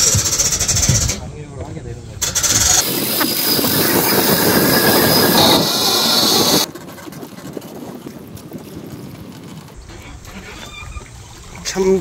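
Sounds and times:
loud rushing hiss: 2.2 - 6.7.

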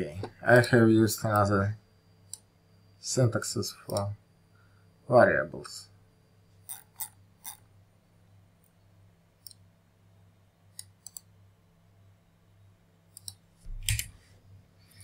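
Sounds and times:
faint low hum: 0.0 - 15.0
mouse and keyboard clicks: 10.7 - 11.3, 13.1 - 14.1.

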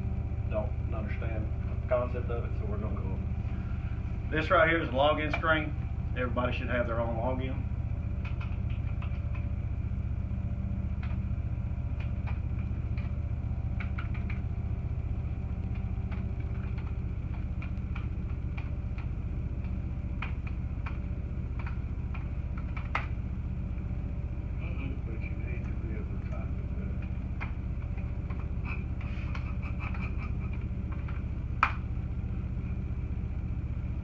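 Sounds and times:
steady low hum: 0.0 - 34.0
computer keyboard clicking: 8.2 - 9.5, 13.8 - 14.4, 15.6 - 21.0, 21.6 - 23.1.

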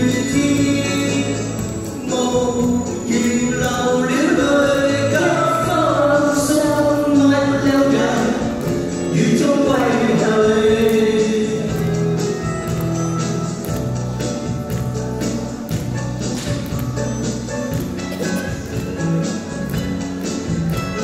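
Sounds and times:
people singing into microphones: 0.0 - 12.0
pop backing track: 0.0 - 21.0.

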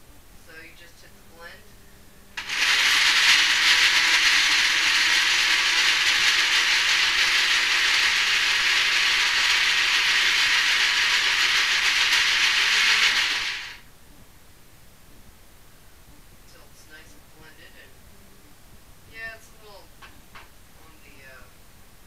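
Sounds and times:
blender running: 2.4 - 13.8.

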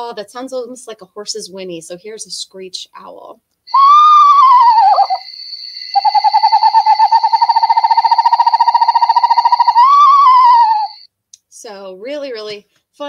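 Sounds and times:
owl monotone trill: 3.7 - 11.1
owl whinny call: 3.7 - 11.1
thin steady high tone: 3.7 - 11.1.

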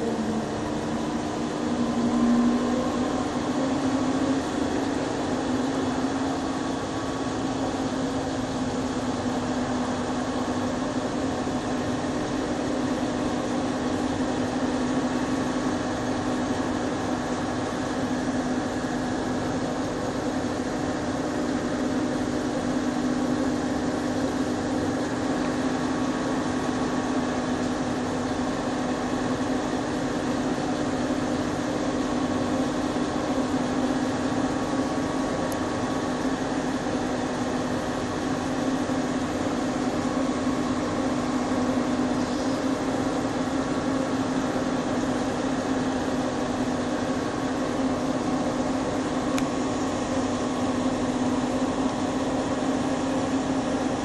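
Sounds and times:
cable car mechanical drone: 0.0 - 10.0.

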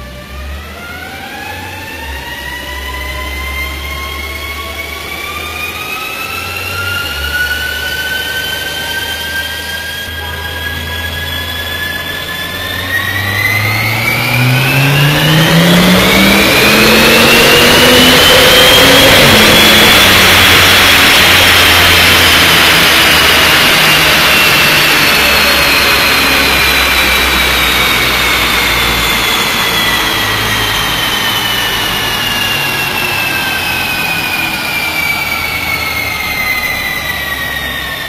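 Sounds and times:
car engine at full throttle: 0.0 - 38.0
high whine of rollers coasting: 0.0 - 38.0.

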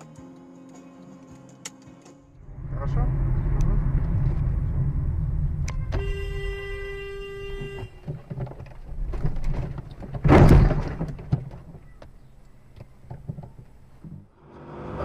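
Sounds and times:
engine and road rumble: 2.2 - 15.0
car collision crash: 3.1 - 11.8
small knocks: 7.4 - 14.3.

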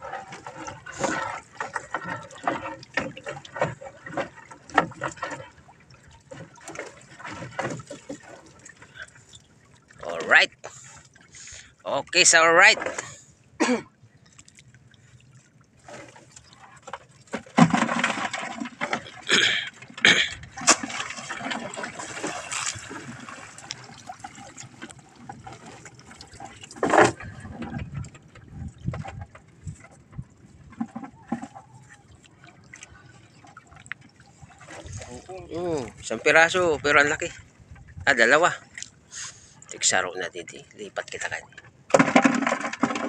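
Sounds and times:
water splashing: 0.0 - 13.4, 14.2 - 43.0
sharp splash or knock: 20.6 - 23.4, 41.9 - 43.0.

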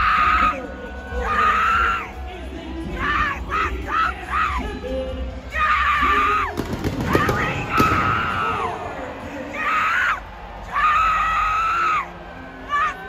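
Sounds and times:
arena crowd noise: 0.0 - 13.0
pyrotechnics booming: 6.6 - 8.5.

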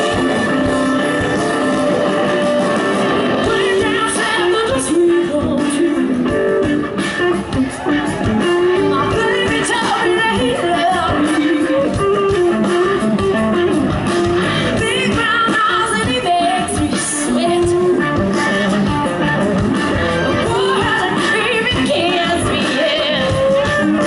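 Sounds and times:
bass guitar: 0.0 - 24.0
drums: 0.0 - 24.0
electric guitar: 0.0 - 24.0
woman singing: 3.4 - 6.6, 8.9 - 12.3, 14.8 - 18.2, 20.4 - 24.0.

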